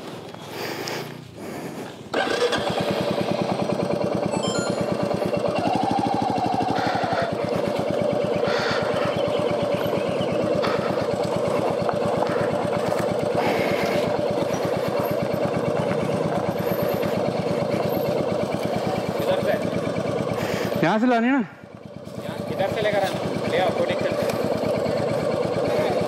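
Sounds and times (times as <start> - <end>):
motorcycle engine thumping: 6.2 - 20.4, 21.7 - 25.7.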